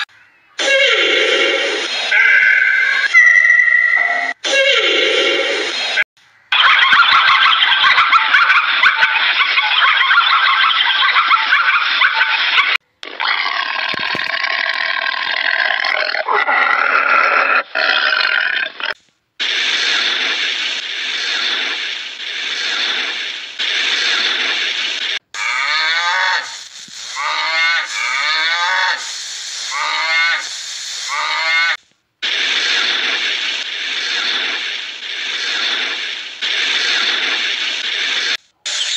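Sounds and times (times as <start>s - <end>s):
animal sounds: 0.0s - 5.3s, 25.4s - 26.6s, 27.2s - 29.1s.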